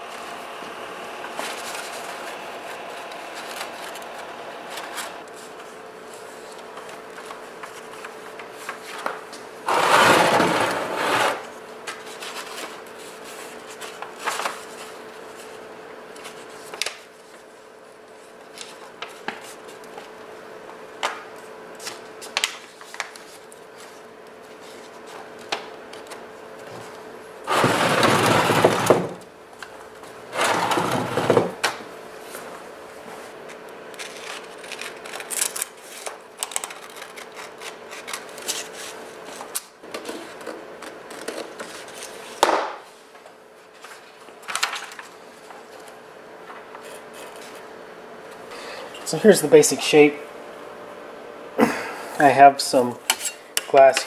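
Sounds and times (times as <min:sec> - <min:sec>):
paper crumpling bursts: 0:01.3 - 0:09.2, 0:21.8 - 0:26.2, 0:33.4 - 0:39.5
paper rustling and crinkling: 0:01.3 - 0:09.5, 0:11.8 - 0:20.2, 0:21.1 - 0:27.0, 0:32.2 - 0:47.7.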